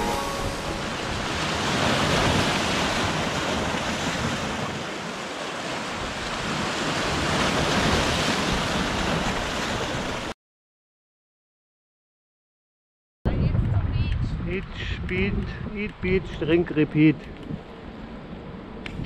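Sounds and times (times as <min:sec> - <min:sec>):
sea waves breaking over rocks: 0:00.0 - 0:10.4.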